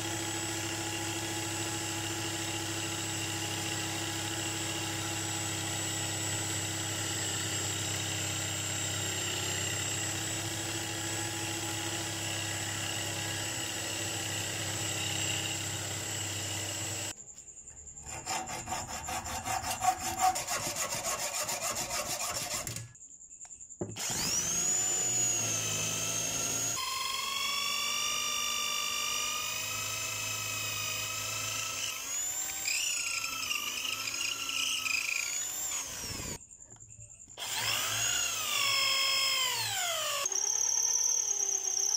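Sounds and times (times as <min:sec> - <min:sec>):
electric drill running: 0:00.0 - 0:17.2, 0:23.9 - 0:36.4, 0:37.4 - 0:41.9
hacksaw sawing steel: 0:18.0 - 0:23.0
sandpaper on spinning wood: 0:18.1 - 0:22.7.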